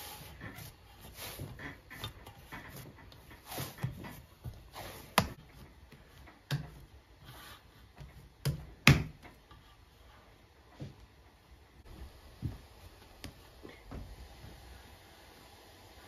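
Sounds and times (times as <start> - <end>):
hands patting dough: 0.0 - 9.7
sharp slaps on dough: 8.4 - 9.2.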